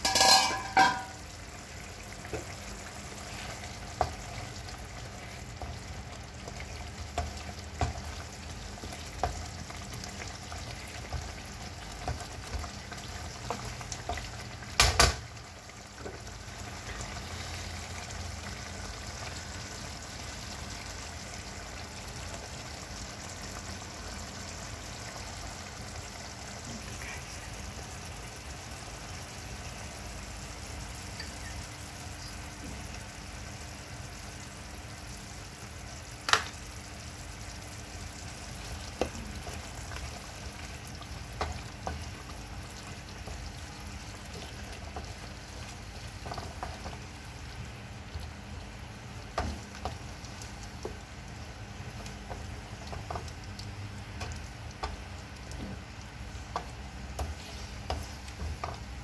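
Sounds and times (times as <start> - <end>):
wooden spatula knocking pan: 0.0 - 1.2
curry sizzling in a wok: 0.0 - 59.0.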